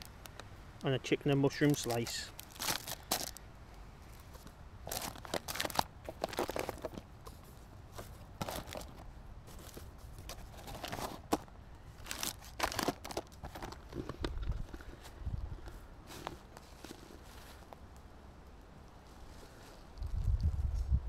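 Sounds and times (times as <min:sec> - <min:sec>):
plastic packaging crinkling: 0:01.6 - 0:03.4, 0:04.2 - 0:07.4, 0:08.0 - 0:14.8.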